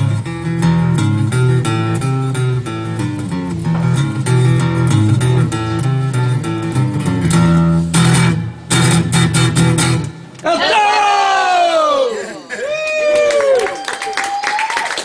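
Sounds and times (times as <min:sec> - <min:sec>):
electric guitar instrumental: 0:00.0 - 0:10.4.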